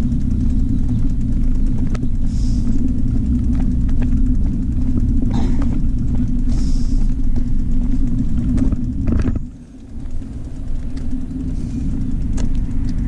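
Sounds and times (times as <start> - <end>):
wind rumble on microphone: 0.0 - 13.0.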